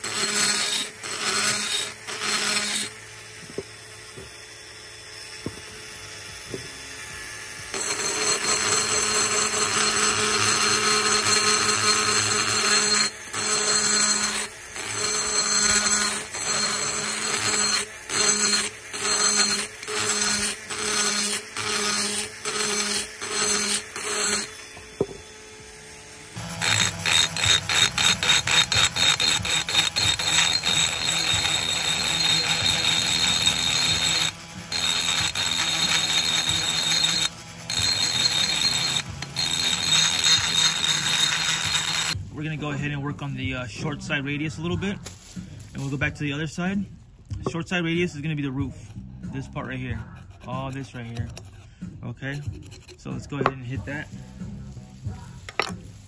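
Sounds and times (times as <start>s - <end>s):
rotary tool grinding metal: 0.0s - 42.7s, 49.4s - 54.3s.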